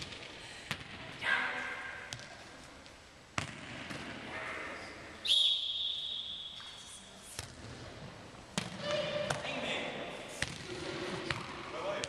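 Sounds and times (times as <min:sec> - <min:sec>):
referee's whistle: 0:05.2 - 0:06.8.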